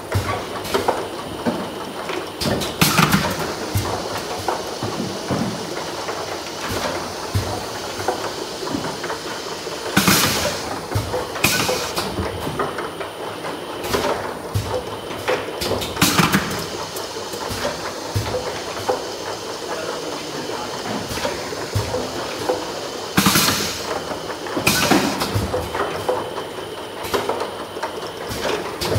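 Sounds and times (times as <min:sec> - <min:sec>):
machine clatter: 0:00.0 - 0:28.9
plastic bottles knocking on conveyor: 0:00.1 - 0:09.0, 0:09.9 - 0:12.8, 0:13.8 - 0:16.8, 0:20.8 - 0:26.4.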